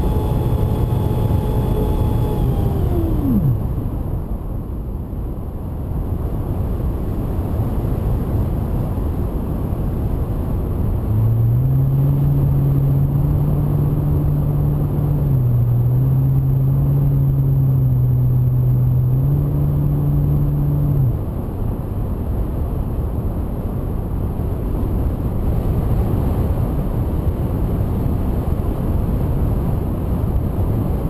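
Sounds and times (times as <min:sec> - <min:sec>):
electric motor and propeller hum: 0:00.0 - 0:04.3, 0:10.6 - 0:21.3.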